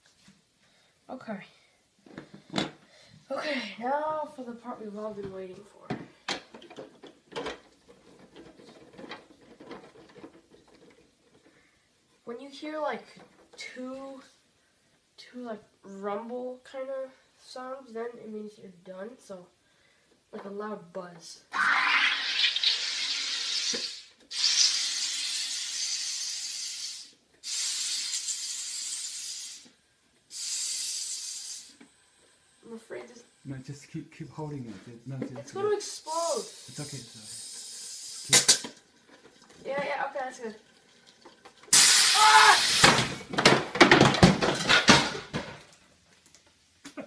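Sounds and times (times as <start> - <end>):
gas hissing into a bottle: 21.6 - 33.4, 36.0 - 38.8, 41.6 - 43.3
bottle sputtering and clattering: 36.5 - 45.7.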